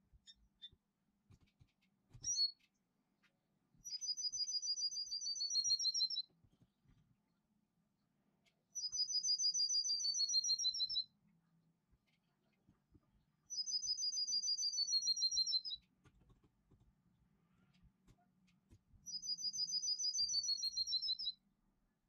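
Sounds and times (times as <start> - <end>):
short bird chirp: 2.2 - 2.7, 13.6 - 15.8, 19.1 - 21.4
songbird trilling: 19.1 - 21.3.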